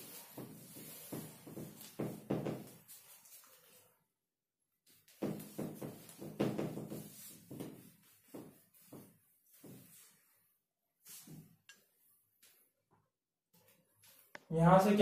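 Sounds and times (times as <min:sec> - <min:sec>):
duster rubbing on whiteboard: 0:00.0 - 0:03.4, 0:04.9 - 0:10.4.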